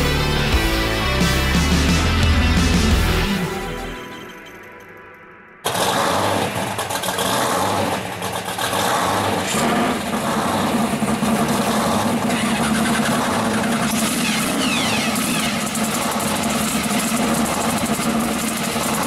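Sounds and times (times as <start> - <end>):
car engine idling: 5.7 - 19.0.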